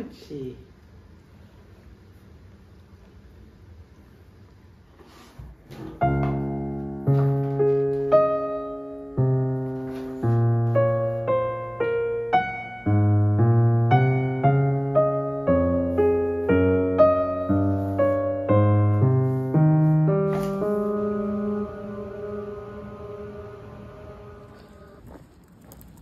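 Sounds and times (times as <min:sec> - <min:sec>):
calm piano melody: 0:05.9 - 0:25.2.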